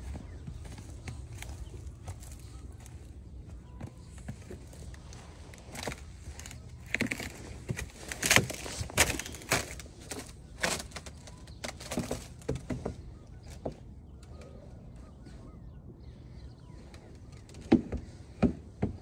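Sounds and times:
footsteps crunching through snow: 0.0s - 12.4s.

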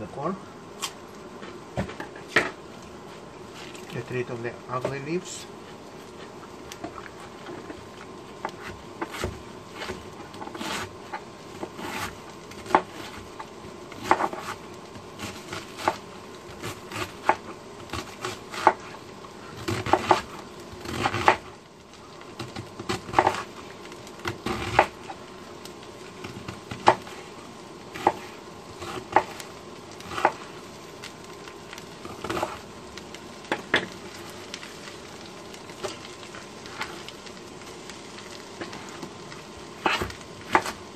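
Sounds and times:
knife chopping on cutting board: 8.4s - 10.9s, 14.0s - 14.6s, 19.7s - 21.5s, 28.0s - 29.4s, 39.8s - 40.8s.

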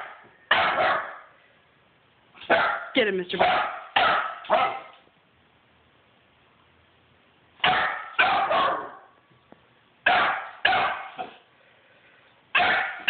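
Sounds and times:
puppy barking: 0.0s - 1.3s, 2.4s - 5.0s, 7.6s - 9.1s, 10.0s - 11.4s, 12.5s - 13.0s.

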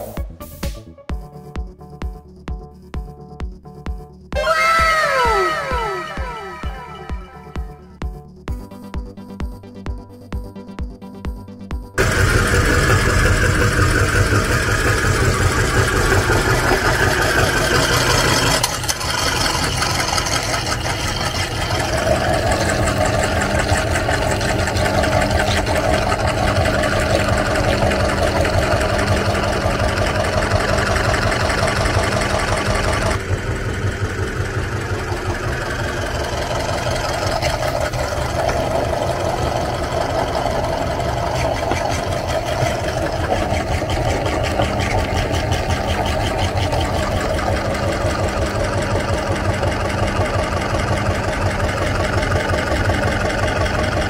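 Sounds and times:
meat grinder running: 12.0s - 54.0s.

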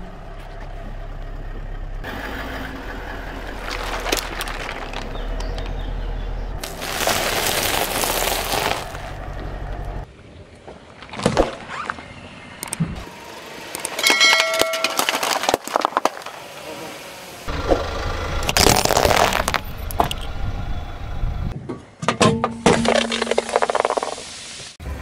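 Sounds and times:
car and wet tyre noise: 2.0s - 10.0s, 14.8s - 21.0s
plastic crackling and crunching: 3.5s - 5.7s, 6.6s - 9.2s, 14.8s - 16.3s, 18.5s - 20.2s.

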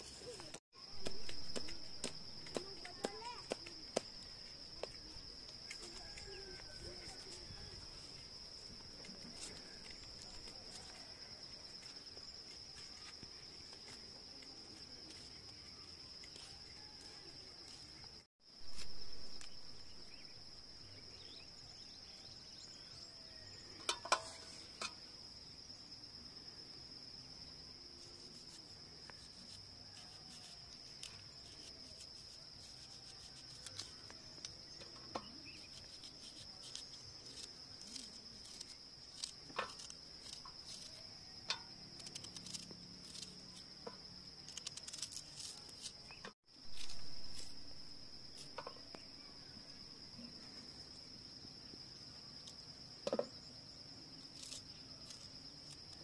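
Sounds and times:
insects trilling: 0.0s - 56.0s.

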